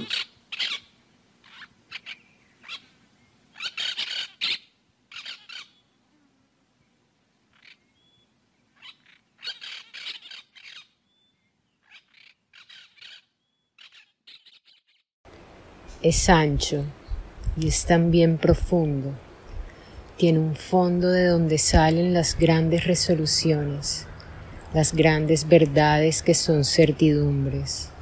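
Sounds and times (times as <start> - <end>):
birds squawking: 0.0 - 5.8, 8.8 - 15.0.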